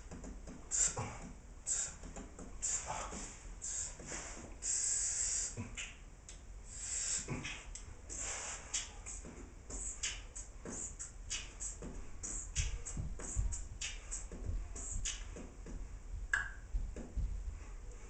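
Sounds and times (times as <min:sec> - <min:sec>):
man beatboxing: 0:00.1 - 0:06.1, 0:06.7 - 0:15.9
deep kick-drum thumps: 0:15.4 - 0:17.5.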